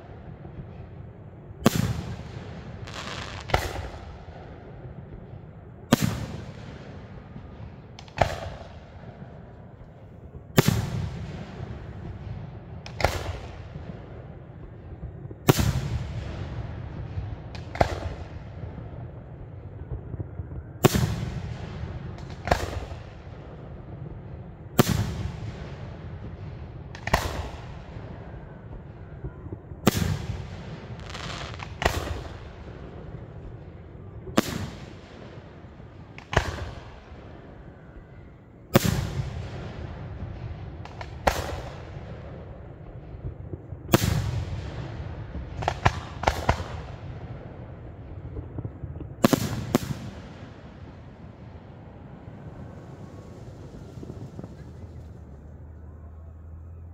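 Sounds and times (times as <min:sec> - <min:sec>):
rolling echo: 0:00.0 - 0:56.9.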